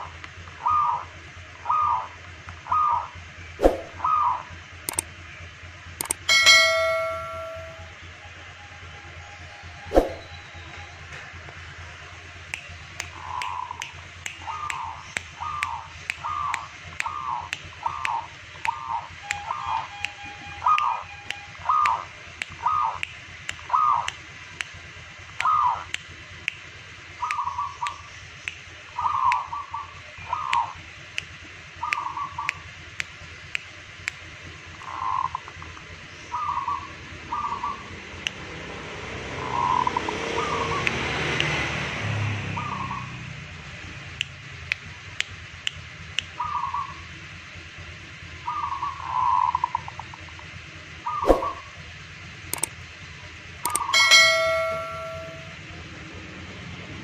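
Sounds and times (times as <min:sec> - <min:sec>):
sharp ticking: 0:04.9 - 0:05.1, 0:06.0 - 0:08.0, 0:52.5 - 0:52.8, 0:53.6 - 0:55.6
sharp ticks: 0:04.9 - 0:05.2, 0:06.0 - 0:07.9, 0:12.4 - 0:29.5, 0:40.8 - 0:41.6, 0:44.2 - 0:46.4, 0:52.5 - 0:52.8, 0:53.6 - 0:55.6.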